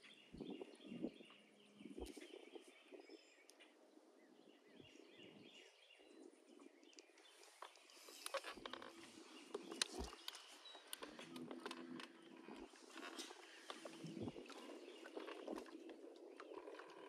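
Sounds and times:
distant birds chirping: 0:00.0 - 0:17.0
soft clicks: 0:06.8 - 0:14.7.

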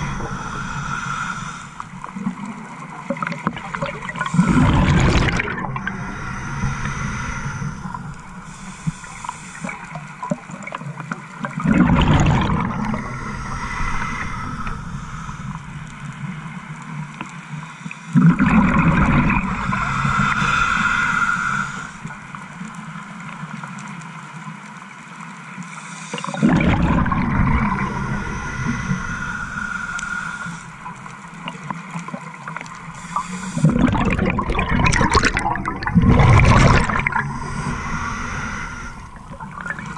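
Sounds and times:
exhaled bubbles gurgling underwater: 0:00.0 - 0:24.5, 0:26.0 - 0:39.9
regulator hiss: 0:05.8 - 0:10.2, 0:19.6 - 0:22.3, 0:27.7 - 0:31.3, 0:37.2 - 0:39.9.

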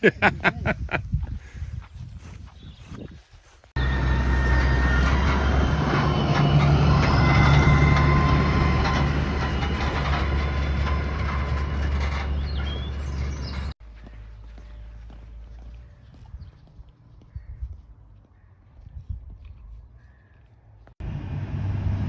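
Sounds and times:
vehicle engine hum: 0:03.8 - 0:17.3, 0:20.4 - 0:22.0.

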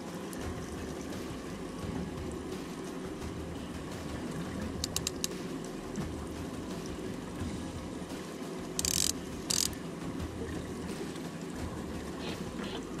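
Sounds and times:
boat engine and water rumble: 0:00.0 - 0:13.0.

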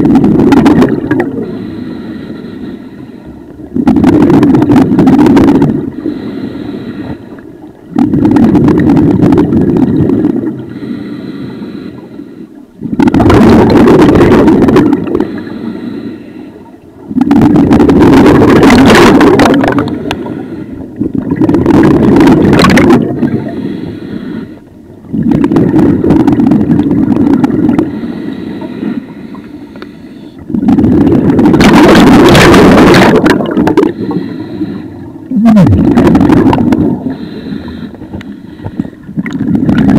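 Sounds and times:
exhaled bubbles rushing: 0:00.0 - 0:01.5, 0:03.6 - 0:06.0, 0:07.6 - 0:10.6, 0:12.8 - 0:15.4, 0:17.0 - 0:20.2, 0:20.9 - 0:23.6, 0:25.0 - 0:28.0, 0:30.4 - 0:34.2, 0:35.1 - 0:37.3, 0:39.0 - 0:39.9
hissing inhalation through regulator: 0:15.1 - 0:16.6, 0:19.8 - 0:20.9, 0:23.3 - 0:24.7, 0:27.8 - 0:30.4, 0:33.8 - 0:35.1, 0:37.0 - 0:39.1.

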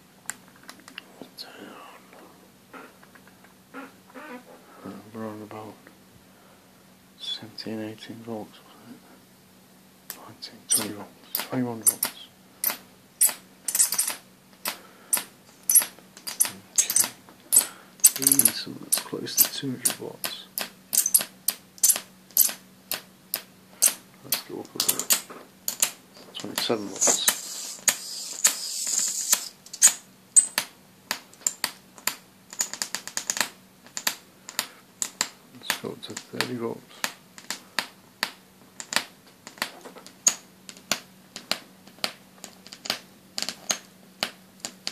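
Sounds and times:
faint steady hum: 0:00.0 - 0:44.9
electric arc crackling and snapping: 0:10.1 - 0:30.0, 0:38.2 - 0:44.9
electric arc crackling: 0:26.4 - 0:30.0.

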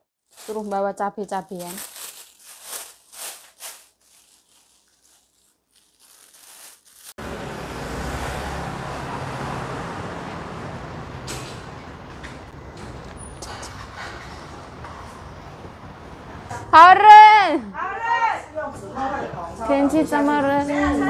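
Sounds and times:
plastic bag crinkling: 0:00.2 - 0:07.2
street traffic noise: 0:07.2 - 0:21.0.

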